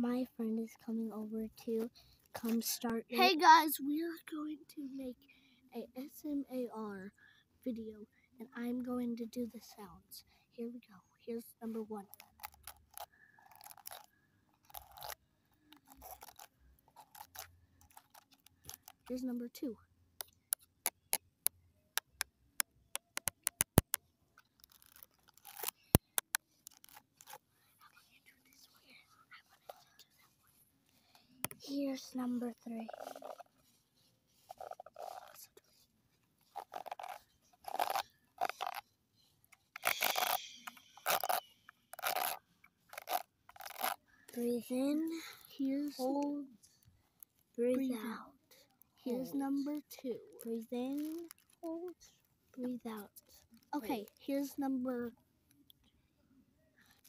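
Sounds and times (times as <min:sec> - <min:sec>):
scratchy rustles: 0:11.6 - 0:19.3, 0:23.2 - 0:38.9, 0:39.6 - 0:44.0, 0:49.1 - 0:54.6.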